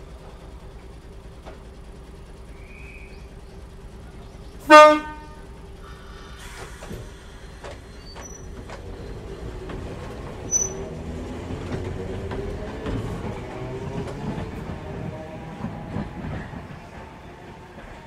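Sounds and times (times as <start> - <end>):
sharp high squeak: 7.9 - 8.6, 10.4 - 10.9.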